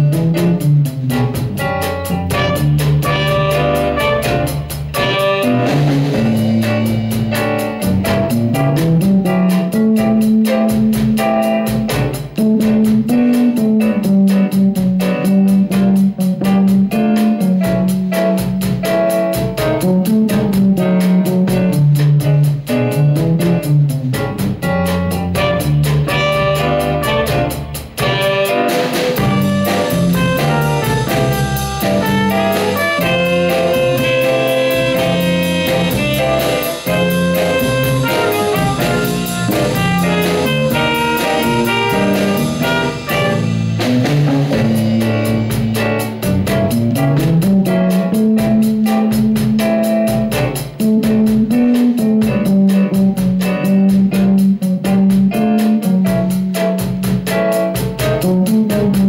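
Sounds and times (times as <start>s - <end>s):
alto saxophone: 0.0s - 21.8s, 22.5s - 59.0s
drum kit cymbals: 0.0s - 59.0s
electric bass guitar line: 0.0s - 59.0s
piano: 0.0s - 59.0s
trumpet: 1.8s - 7.9s, 25.1s - 46.4s.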